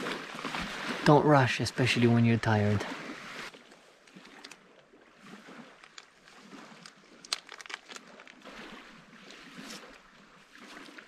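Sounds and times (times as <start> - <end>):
faint crinkling: 5.6 - 8.8
small objects clicking: 5.8 - 6.1, 6.7 - 8.4.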